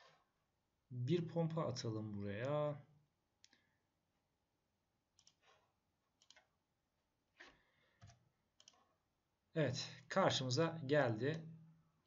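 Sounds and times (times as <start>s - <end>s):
computer mouse clicks: 3.4s - 3.6s, 5.1s - 6.5s, 7.4s - 8.9s.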